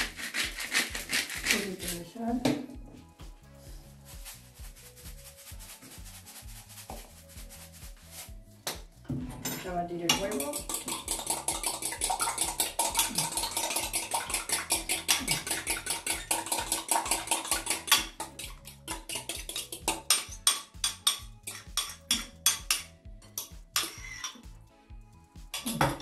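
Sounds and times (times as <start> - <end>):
fork beating egg in cup: 0.0 - 2.1, 10.0 - 24.5, 25.5 - 26.0.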